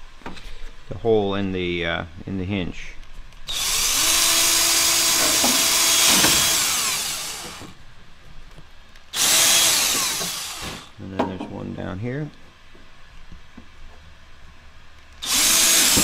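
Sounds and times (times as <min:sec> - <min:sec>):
power drill running: 0:03.5 - 0:07.8, 0:09.1 - 0:11.0, 0:15.2 - 0:16.0.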